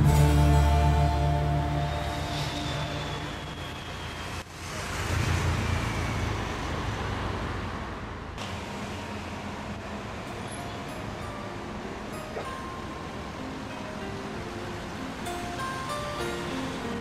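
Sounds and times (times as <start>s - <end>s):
low vehicle rumble: 0.0s - 6.8s
passing cars and buses: 0.0s - 17.0s.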